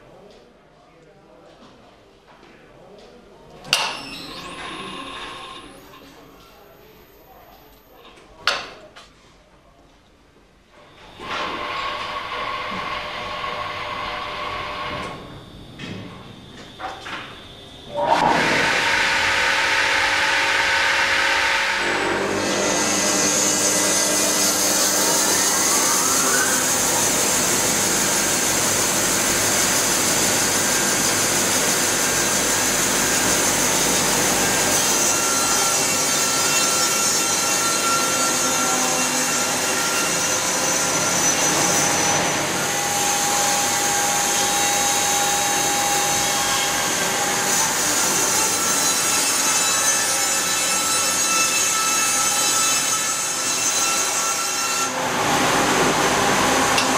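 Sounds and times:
band sawmill cutting log: 0:11.2 - 0:15.1, 0:17.9 - 0:56.9.

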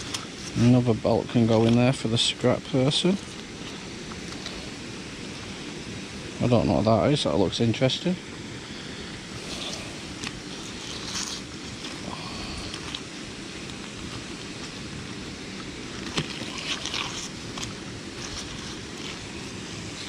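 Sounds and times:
gloved hands clicking and scraping: 0:09.4 - 0:15.0, 0:15.6 - 0:20.0.

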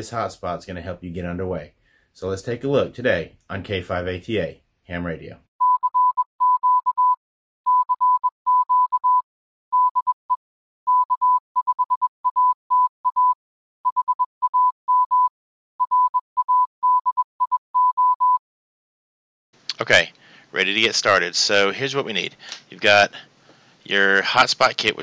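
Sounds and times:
morse code beeps: 0:05.6 - 0:18.4.

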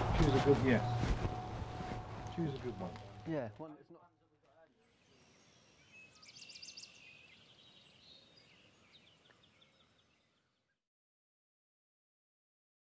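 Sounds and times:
small birds trilling: 0:05.0 - 0:10.6.

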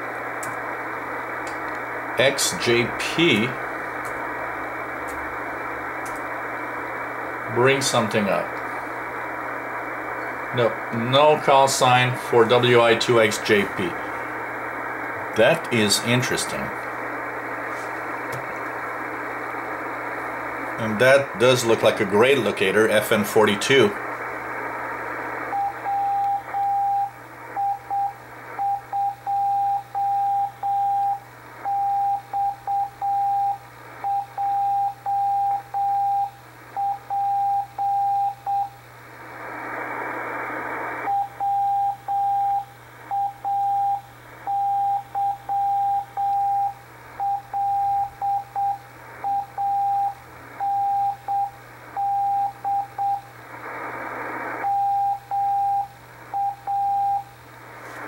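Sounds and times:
receiver hiss: 0:00.0 - 0:58.0
morse code beat tone: 0:25.5 - 0:38.8, 0:41.1 - 0:53.2, 0:54.6 - 0:57.3.

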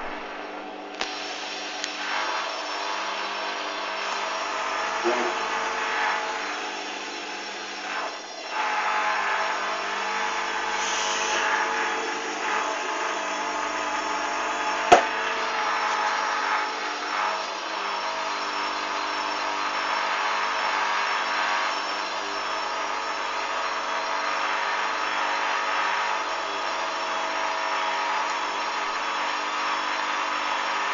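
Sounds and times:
washing machine spinning: 0:00.0 - 0:30.9
sharp knock: 0:14.9 - 0:15.1.

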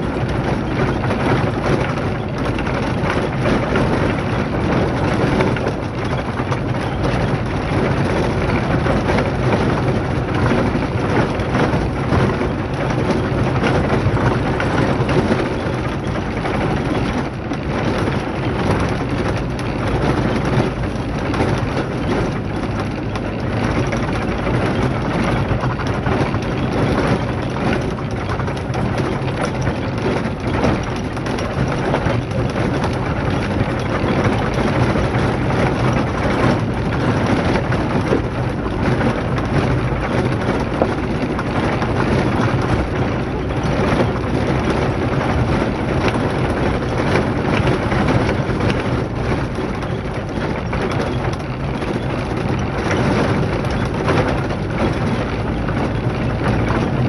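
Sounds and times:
low engine hum: 0:00.0 - 0:57.0.

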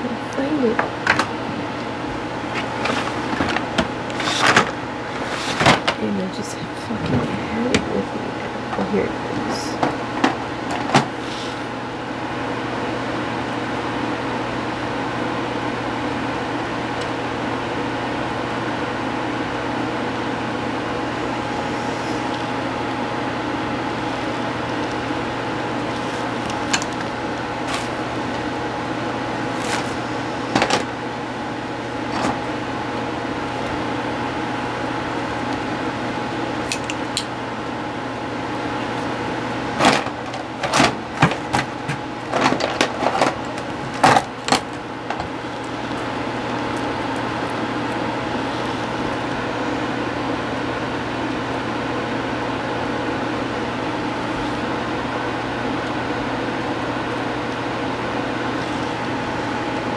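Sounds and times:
appliance electric hum: 0:00.0 - 0:59.9.

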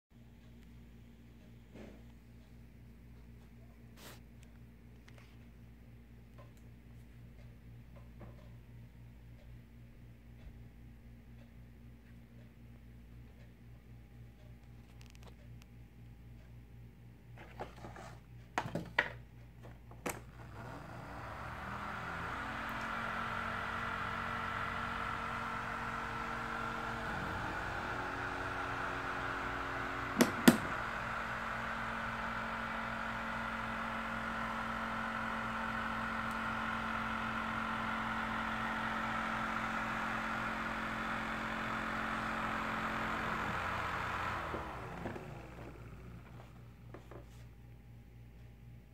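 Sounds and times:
small motor and rotor whirring: 0:20.0 - 0:47.2.

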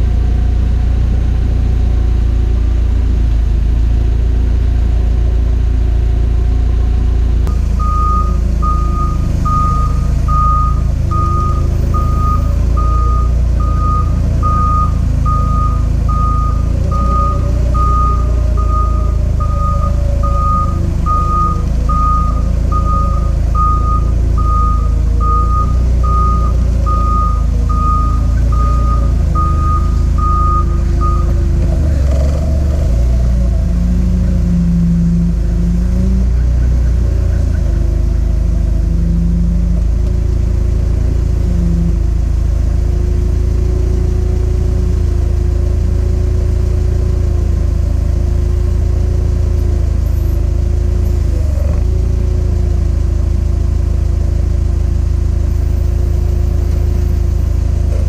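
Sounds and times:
forklift engine rumble: 0:00.0 - 0:58.0
back-up alarm beeping: 0:07.5 - 0:32.4.

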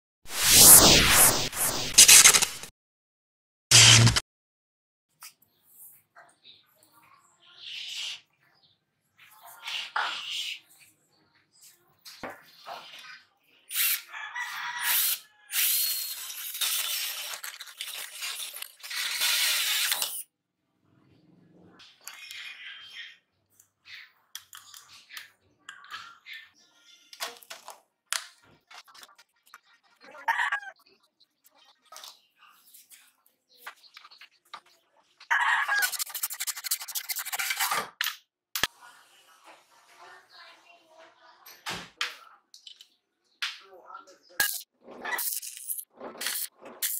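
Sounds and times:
cordless drill cutting steel: 0:00.4 - 0:02.7, 0:03.7 - 0:04.2, 0:14.8 - 0:20.2
metal tool rasping on pipe: 0:35.8 - 0:37.6.

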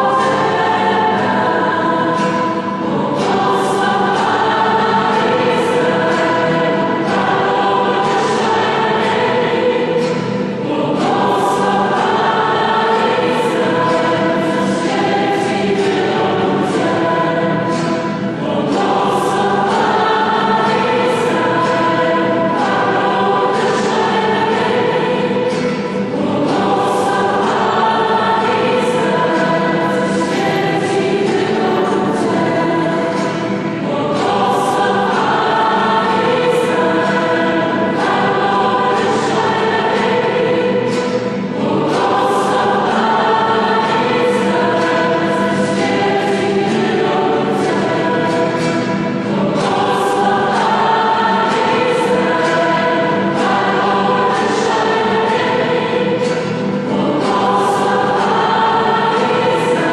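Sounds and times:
choir singing a hymn: 0:00.0 - 0:59.9.

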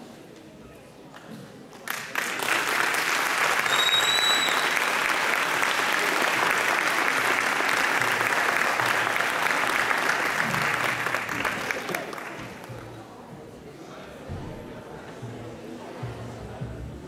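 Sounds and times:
audience applauding: 0:01.8 - 0:12.9
high whistle: 0:03.6 - 0:04.9.

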